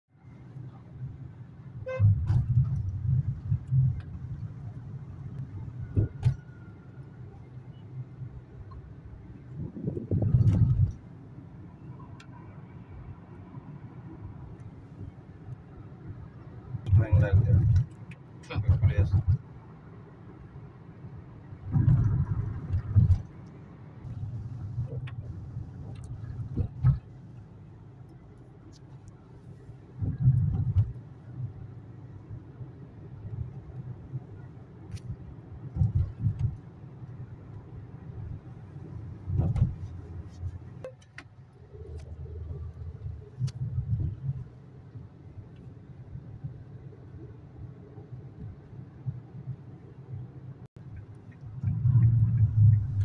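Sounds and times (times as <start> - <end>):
car engine and road noise: 0.1 - 53.0
car horn toot: 1.8 - 2.2.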